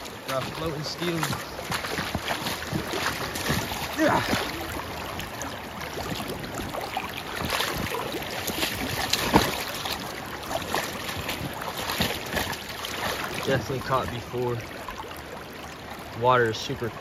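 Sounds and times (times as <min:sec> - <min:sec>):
stream rushing: 0:00.0 - 0:17.0
water splashing around a fish: 0:00.0 - 0:17.0.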